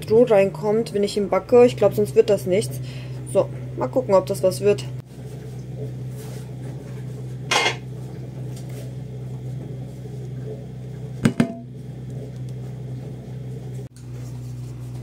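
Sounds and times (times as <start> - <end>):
kitchen appliance humming: 0.0 - 15.0.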